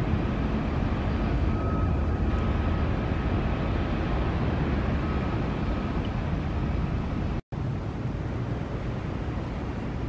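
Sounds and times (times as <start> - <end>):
jet engines rumbling: 0.0 - 10.0
faint high whine: 0.7 - 6.7.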